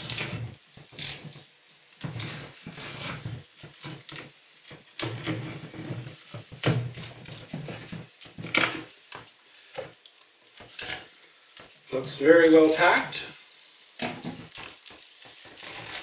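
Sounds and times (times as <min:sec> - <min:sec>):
cardboard flaps scraping and knocking: 0:02.0 - 0:09.0, 0:14.0 - 0:16.0
tape tearing: 0:02.0 - 0:09.3, 0:14.0 - 0:16.0
knife slicing packing tape: 0:14.6 - 0:16.0.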